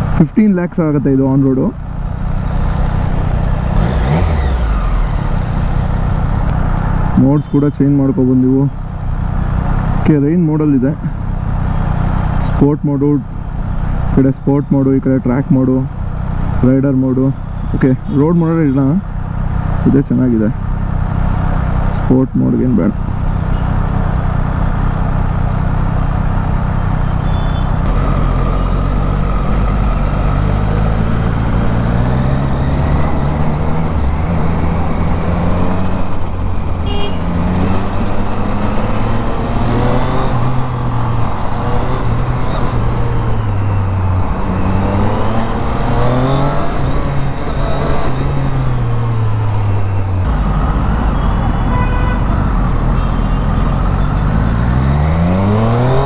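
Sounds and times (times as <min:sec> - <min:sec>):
motorcycle engine revving: 0:01.4 - 0:07.5, 0:23.0 - 0:56.0.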